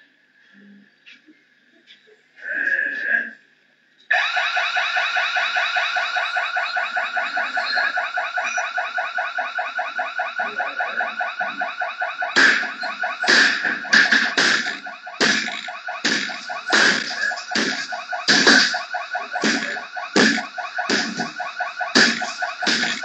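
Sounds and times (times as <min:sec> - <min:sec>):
electronic alarm pulsing: 0:04.1 - 0:23.0
loud sharp knocks: 0:12.3 - 0:23.0.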